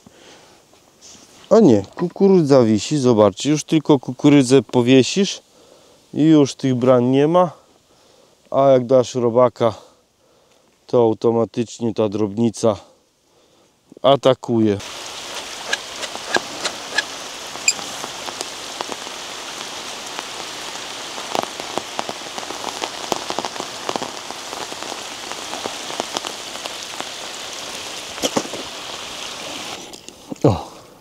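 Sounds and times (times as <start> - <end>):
rain falling: 14.6 - 31.0
raindrops tapping: 14.8 - 30.4.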